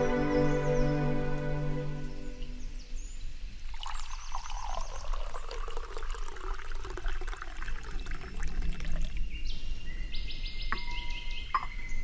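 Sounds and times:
drips and spatters: 0:03.7 - 0:09.2
liquid pouring and splashing: 0:03.7 - 0:09.2.

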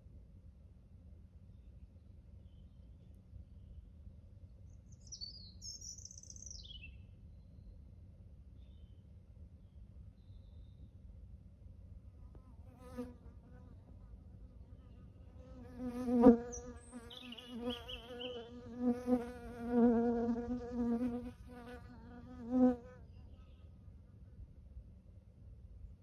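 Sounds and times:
flying insect buzzing: 0:15.5 - 0:22.9.

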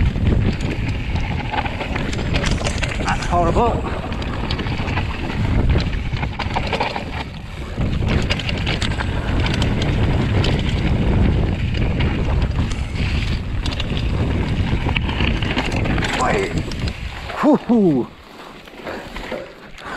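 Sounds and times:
mountain bike rattling: 0:00.0 - 0:19.9
wind buffeting microphone: 0:00.0 - 0:19.9.

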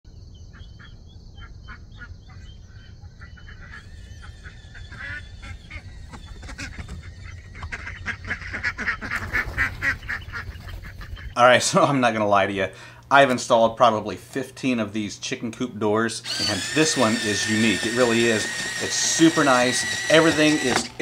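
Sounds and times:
ducks quacking: 0:00.5 - 0:11.4.

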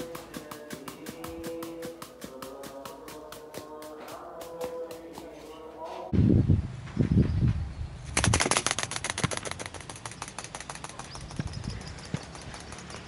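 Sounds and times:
model wings flapping clicks: 0:08.1 - 0:11.6, 0:12.2 - 0:13.0.

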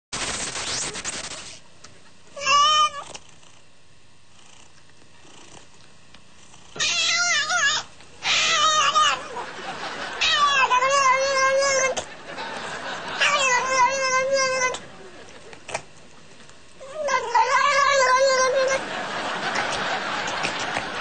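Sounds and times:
cat yowling: 0:02.4 - 0:03.0, 0:06.8 - 0:09.4, 0:10.2 - 0:12.0, 0:13.2 - 0:14.8, 0:16.8 - 0:18.8.

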